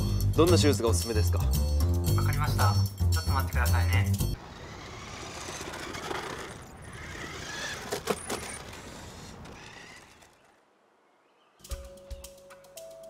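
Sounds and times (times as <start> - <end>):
toy car electric motor whirring: 4.4 - 10.6.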